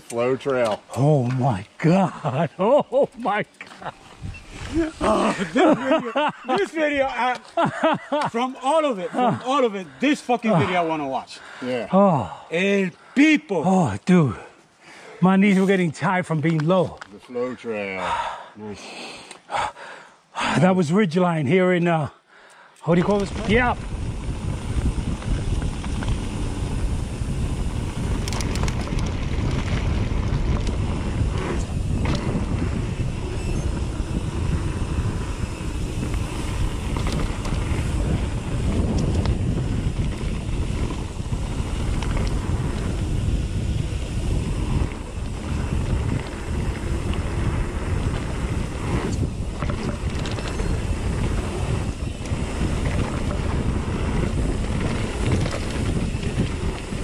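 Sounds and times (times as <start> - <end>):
bike rumble and hiss: 0.0 - 16.6, 22.5 - 57.0
wind buffeting microphone: 3.9 - 7.2, 22.9 - 57.0.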